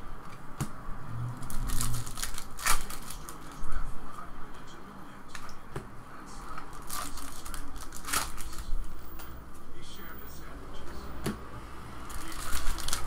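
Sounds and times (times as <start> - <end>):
cards rustling and flicking: 1.4 - 3.8, 6.5 - 9.6, 12.0 - 13.0
foil pack crinkling: 1.5 - 3.7, 6.6 - 9.0, 12.1 - 13.0.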